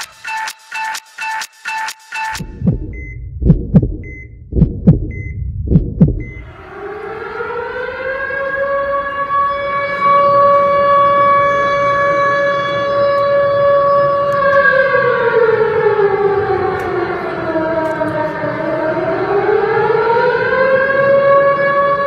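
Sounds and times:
heartbeat thumps: 0:02.4 - 0:06.4
civil defence siren steady tone: 0:06.2 - 0:22.0.

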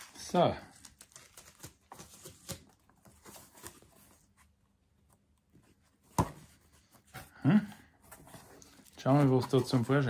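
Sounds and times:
cardboard parcel rustling: 0:00.0 - 0:10.0.

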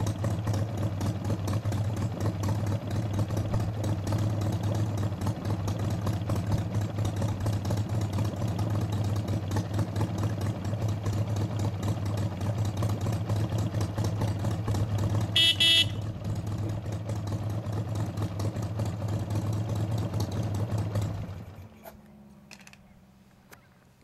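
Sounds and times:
motorcycle engine idling: 0:00.0 - 0:24.0
horn toot: 0:15.3 - 0:16.1.

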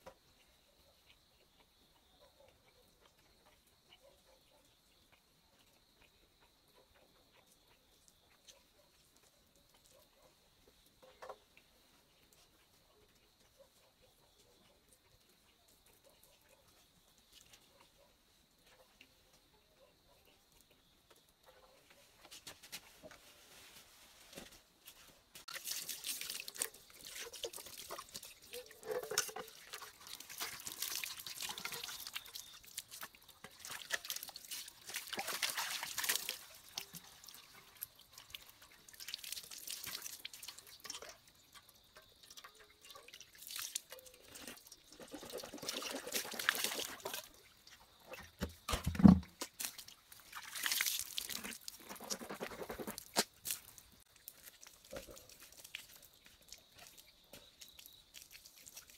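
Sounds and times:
water splashing in pot: 0:25.4 - 0:52.2.

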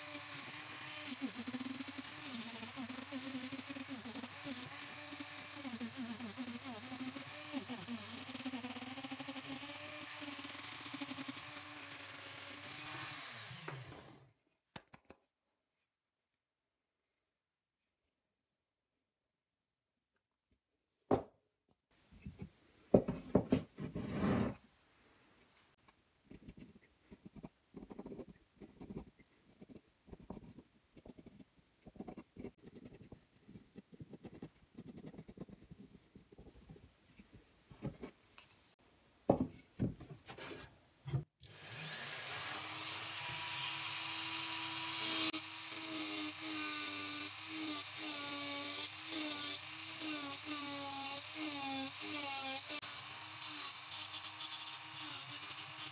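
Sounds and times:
rotary carving tool whining: 0:00.0 - 0:14.2, 0:41.4 - 0:55.9
pencil scratching on wood: 0:26.3 - 0:37.3.

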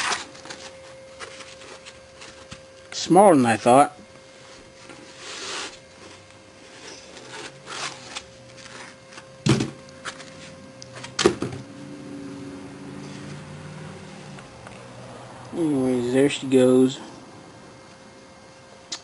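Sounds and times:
foam scraping and rustling: 0:04.8 - 0:09.1.

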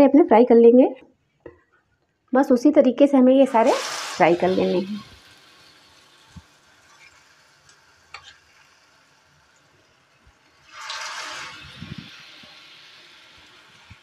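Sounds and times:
batter sizzling in hot oil: 0:03.4 - 0:14.0.

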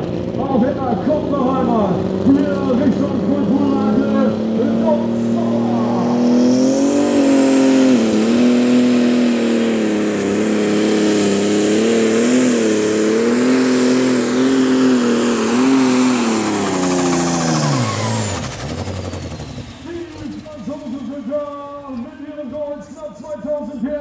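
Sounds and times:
high whine: 0:00.0 - 0:23.2
pulling tractor diesel engine revving: 0:00.0 - 0:23.7.

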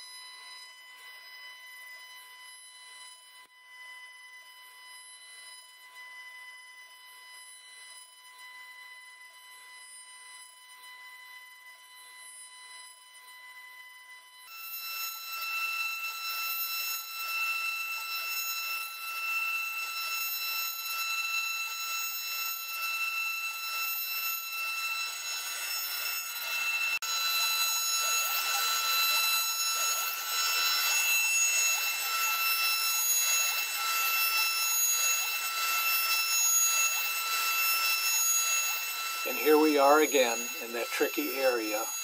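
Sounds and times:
router spindle high-pitched whine: 0:00.0 - 0:42.0
bit cutting wood hiss: 0:19.3 - 0:42.0.

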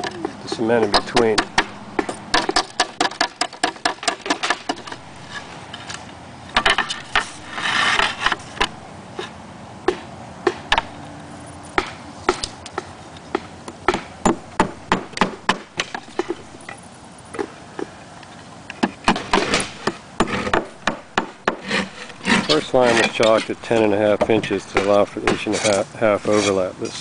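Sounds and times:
slates clacking together: 0:00.0 - 0:08.8, 0:18.8 - 0:26.5
hammer tapping nails into slate: 0:00.8 - 0:05.0, 0:11.8 - 0:16.4, 0:18.8 - 0:25.8
brief scrape: 0:07.2 - 0:08.6.

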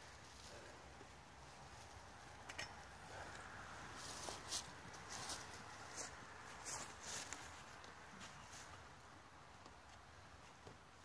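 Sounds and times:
footsteps in dry leaves: 0:03.9 - 0:08.8.

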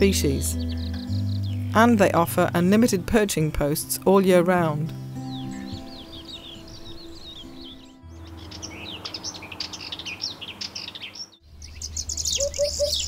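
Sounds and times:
songbirds chirping and trilling: 0:00.0 - 0:13.0
warbler's fast chattering song: 0:05.0 - 0:13.0.

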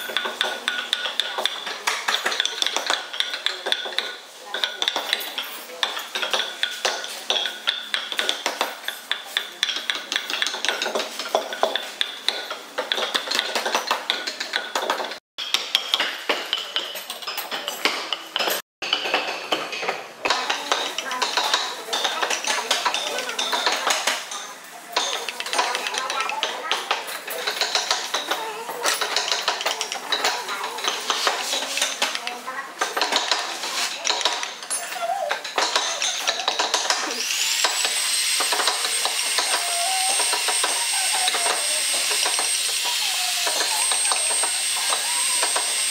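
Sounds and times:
hammer tapping metal chisel: 0:00.0 - 0:45.9
chisel cutting wood: 0:35.4 - 0:45.9.

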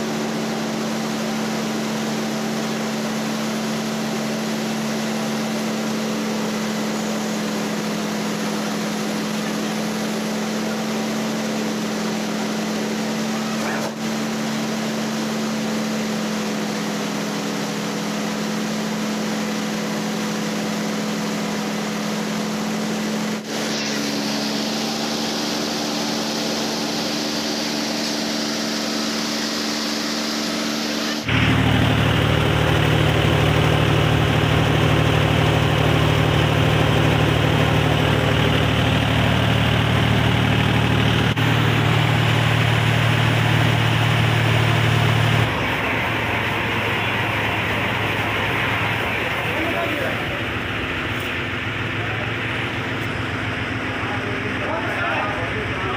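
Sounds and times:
rice mill mechanical drone: 0:00.0 - 0:55.9
tractor engine running: 0:31.0 - 0:55.9.

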